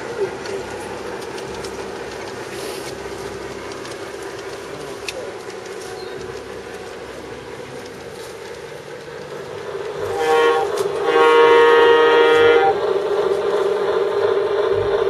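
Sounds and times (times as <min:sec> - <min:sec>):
model train wheels clicking: 0:00.0 - 0:15.0
steady hum: 0:00.0 - 0:15.0.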